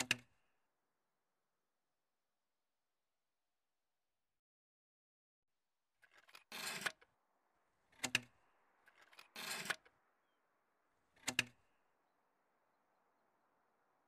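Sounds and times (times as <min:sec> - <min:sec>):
plastic parts scraping: 0:06.0 - 0:07.1, 0:07.9 - 0:10.0.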